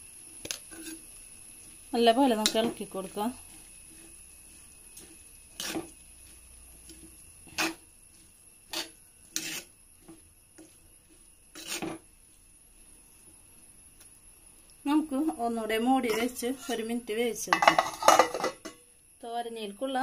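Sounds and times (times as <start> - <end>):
metal spoon scraping clay pot: 0.5 - 1.0, 2.4 - 7.9, 8.6 - 10.7, 11.5 - 12.0, 16.0 - 16.9, 17.5 - 18.8.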